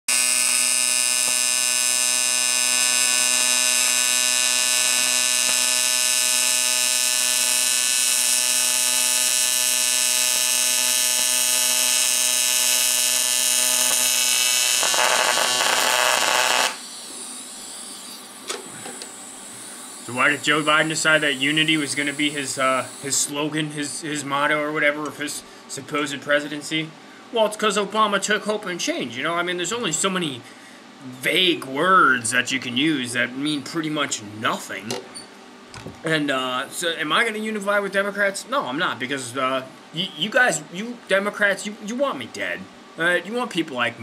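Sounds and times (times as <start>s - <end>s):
welding arc buzzing: 0.1s - 23.4s.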